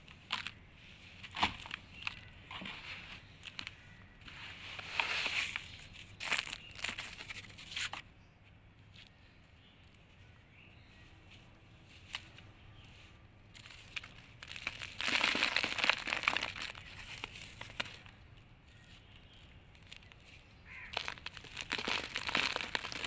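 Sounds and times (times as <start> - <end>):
sand crumbled between fingers: 0.0 - 8.0, 12.0 - 23.0
crumbs falling onto cardboard: 1.2 - 2.8, 13.5 - 18.2, 19.7 - 23.0.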